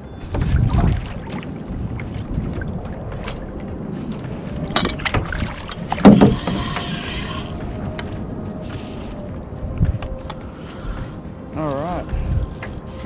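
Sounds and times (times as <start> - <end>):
water slapping against hull: 0.3 - 8.9.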